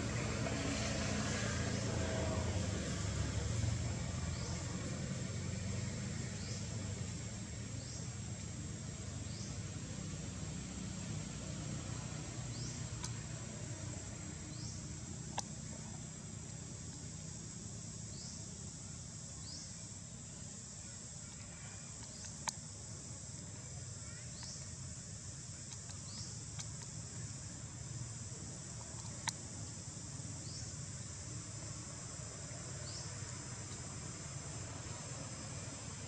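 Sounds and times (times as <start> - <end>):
high insect drone: 0.0 - 36.0
low steady rumble: 0.0 - 36.0
sharp clicks: 12.9 - 13.3, 15.3 - 15.6, 21.3 - 22.7, 25.5 - 27.2, 28.8 - 29.5.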